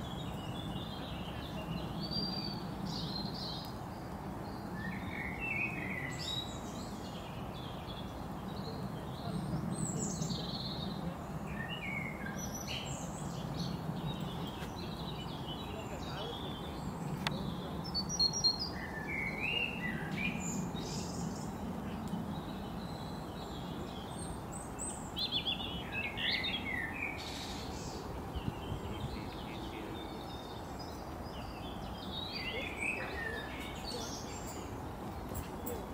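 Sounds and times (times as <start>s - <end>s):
low outdoor hiss: 0.0s - 35.9s
small birds chirping: 0.0s - 35.9s.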